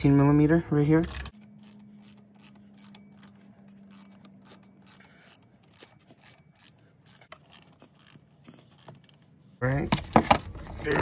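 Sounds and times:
ratchet wrench clicking: 1.0 - 9.3.

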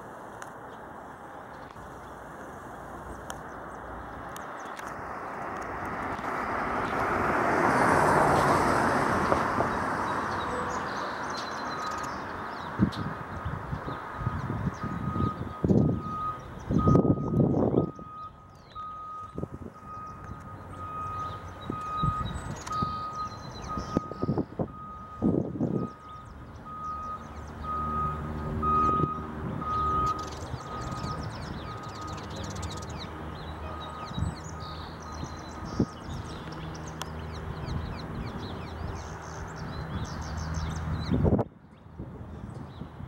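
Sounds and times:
reversing beeper beeps: 14.2 - 32.5, 33.6 - 36.1.

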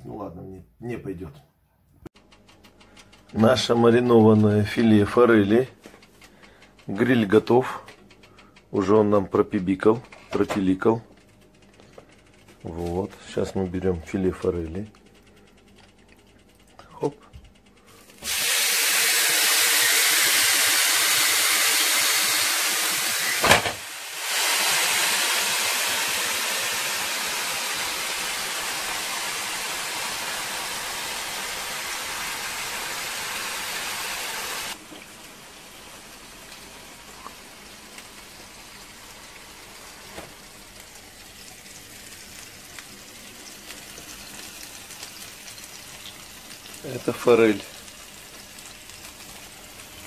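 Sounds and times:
fish sizzling on a grill: 17.9 - 50.0.

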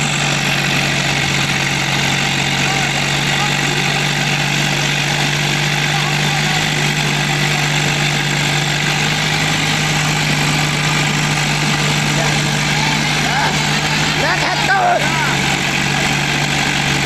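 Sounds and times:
tractor diesel engines humming: 0.0 - 17.0.

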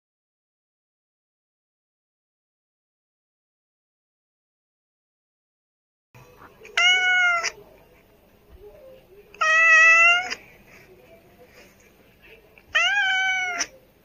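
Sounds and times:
cat meowing: 6.7 - 7.6, 9.4 - 10.4, 12.7 - 13.7.

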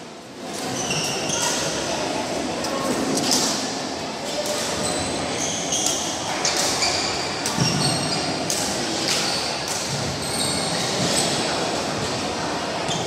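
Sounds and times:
hubbub of indoor hall: 0.0 - 13.0
shoes squeaking on court floor: 0.4 - 1.9, 4.5 - 8.4, 9.0 - 12.0.

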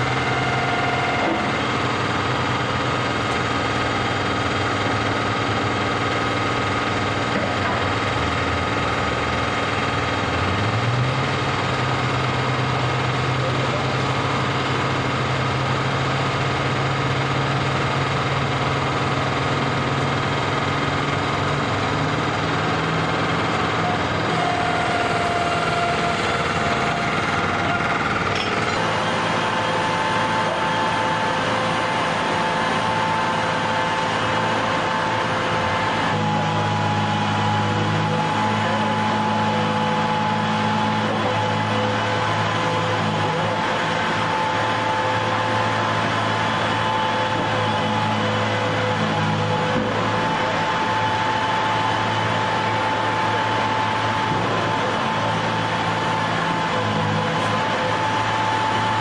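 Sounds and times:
engine high whine: 0.0 - 59.0.

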